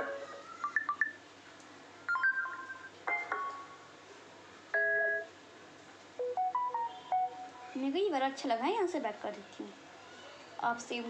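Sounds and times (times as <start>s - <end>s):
phone notification chimes: 6.2s - 7.6s.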